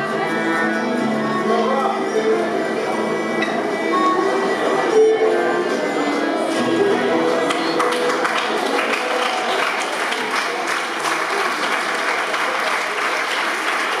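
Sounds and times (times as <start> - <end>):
folk band waltz note: 0.0 - 8.7
audience applauding: 7.4 - 14.0.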